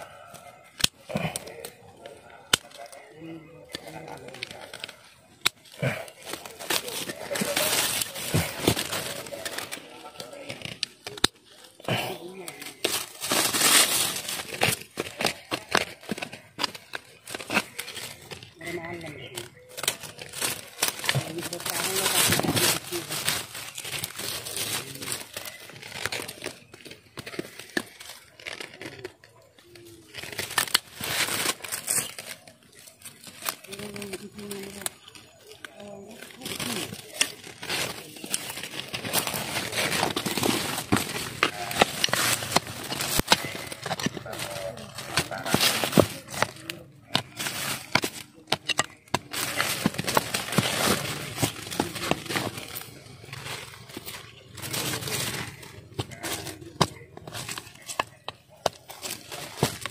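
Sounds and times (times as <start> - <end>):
leaves rustling and crackling: 0.0 - 59.9
scraping: 30.2 - 59.9.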